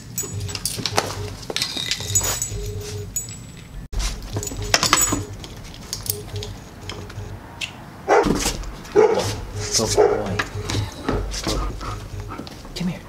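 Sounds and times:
leash clips jingling: 0:00.0 - 0:06.2
dog vocalizing: 0:08.1 - 0:12.4.

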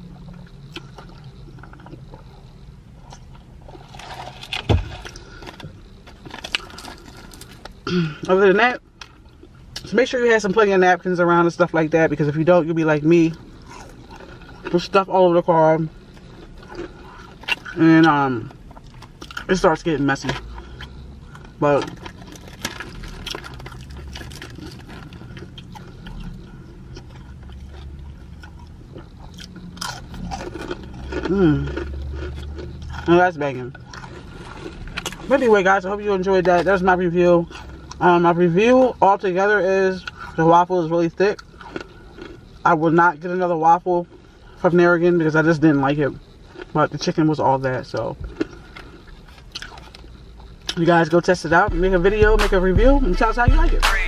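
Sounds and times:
person chewing: 0:00.0 - 0:09.9, 0:13.2 - 0:42.9, 0:44.1 - 0:50.9
low car cabin hum: 0:00.0 - 0:54.0
dull thump: 0:04.6 - 0:05.1.

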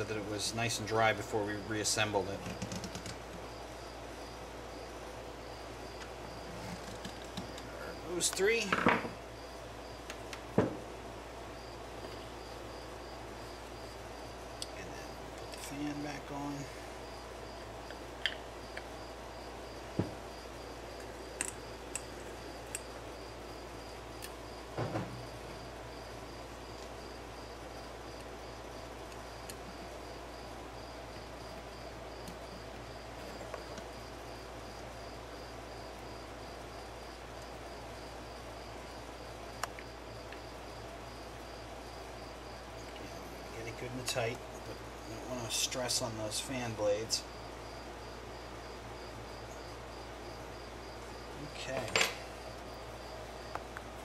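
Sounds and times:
cricket chirping: 0:00.0 - 0:54.0
low steady hum: 0:00.0 - 0:54.0
plastic fan blade clicks and knocks: 0:02.4 - 0:03.4.

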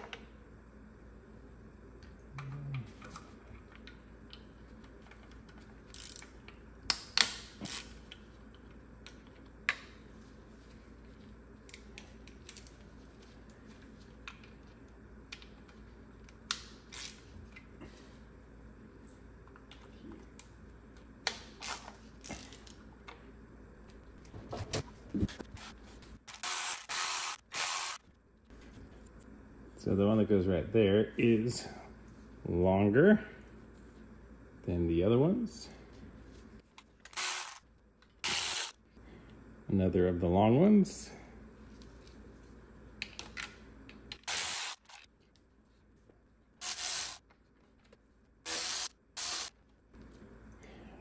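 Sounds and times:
ratchet clicking: 0:05.9 - 0:06.3, 0:26.3 - 0:28.0, 0:37.1 - 0:37.6, 0:38.2 - 0:38.8, 0:44.3 - 0:45.0, 0:46.6 - 0:47.2.

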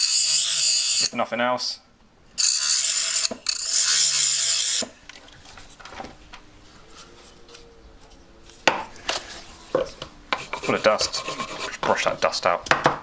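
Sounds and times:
file rasping on metal: 0:02.4 - 0:04.9, 0:10.3 - 0:11.8
short scratchy scrapes: 0:10.4 - 0:12.0.

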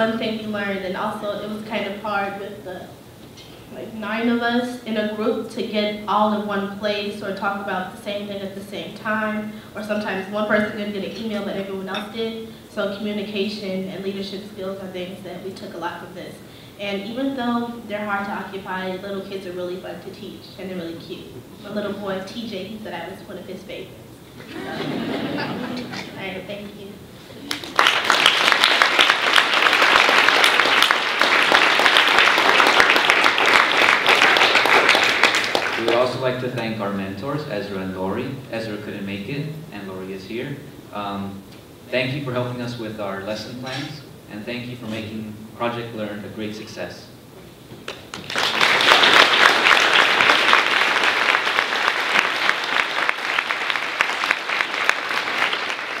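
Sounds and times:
audience applauding: 0:27.4 - 0:36.1, 0:47.9 - 0:56.0.

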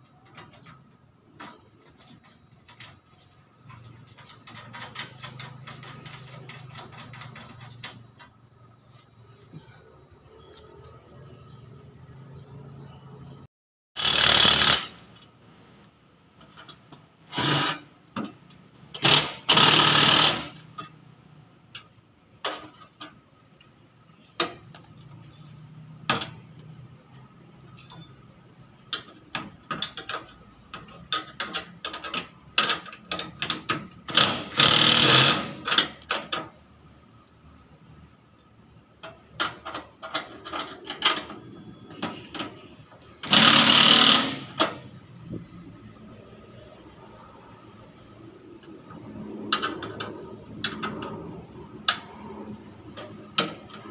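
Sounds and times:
clinks and knocks of tools: 0:00.0 - 0:08.4, 0:27.6 - 0:36.6
impact wrench running: 0:14.0 - 0:15.1, 0:19.0 - 0:20.6, 0:34.1 - 0:35.7, 0:43.2 - 0:44.7.

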